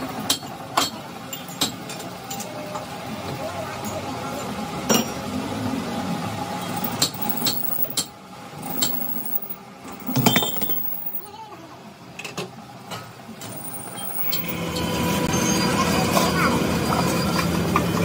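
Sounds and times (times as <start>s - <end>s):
workshop hum: 0.0s - 18.0s
metal clinks and knocks: 6.7s - 11.3s, 13.4s - 14.6s.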